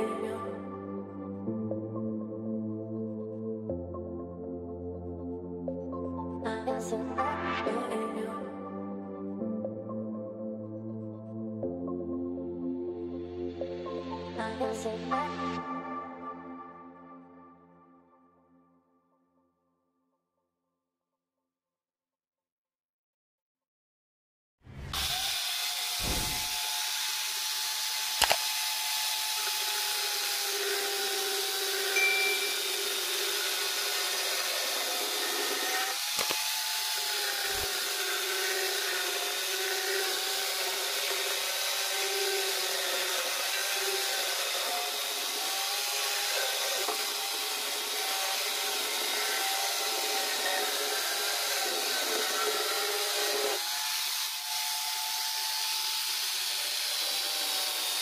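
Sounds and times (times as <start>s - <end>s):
chainsaw cutting wood: 24.8s - 58.0s.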